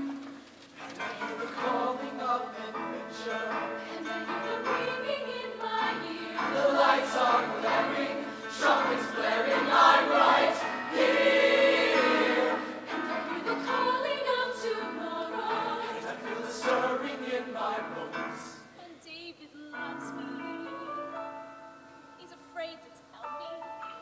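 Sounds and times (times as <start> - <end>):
choir singing in harmony: 1.0 - 18.8.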